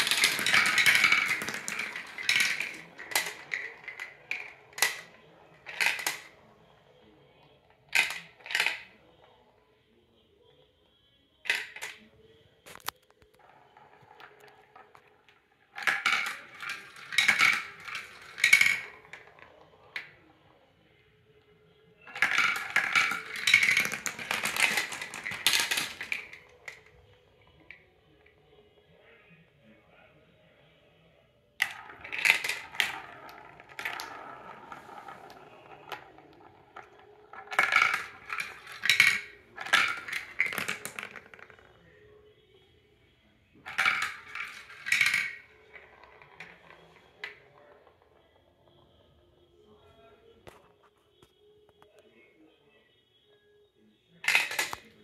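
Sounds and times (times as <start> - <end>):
plastic marbles clattering on tracks: 0.0 - 9.4, 11.5 - 20.5, 22.0 - 28.3, 31.6 - 41.9, 43.6 - 49.0, 54.2 - 55.0.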